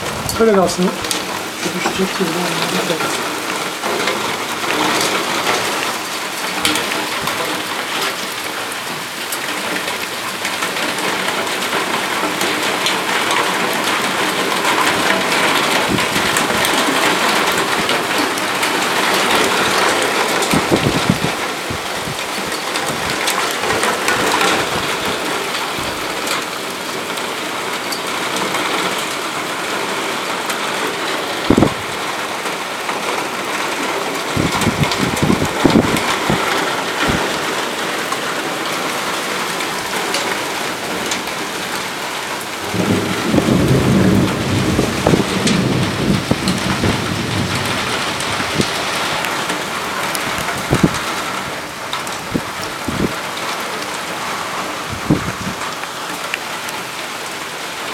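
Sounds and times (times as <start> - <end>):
heavy rain pouring: 0.0 - 57.9.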